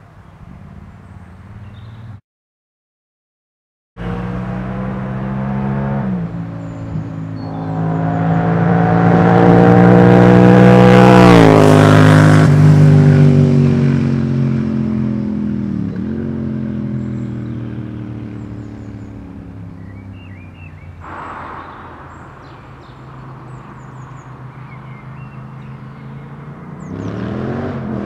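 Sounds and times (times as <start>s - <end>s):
motorcycle accelerating past: 4.0s - 19.8s.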